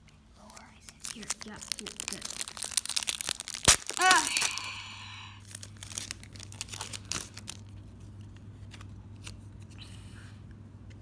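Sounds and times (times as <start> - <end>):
low steady hum: 0.0 - 11.0
foil pack crinkling: 0.4 - 4.8, 5.4 - 9.4.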